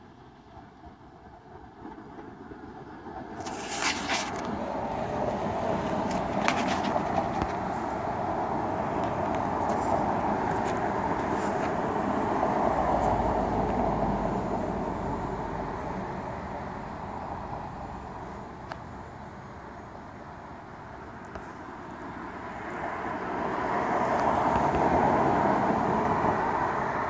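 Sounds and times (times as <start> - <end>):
vehicle passing by: 22.3 - 27.0.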